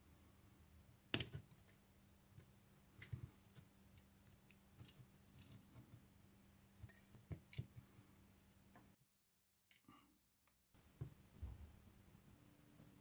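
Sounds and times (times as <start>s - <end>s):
small parts clicking and tapping: 1.1s - 5.8s.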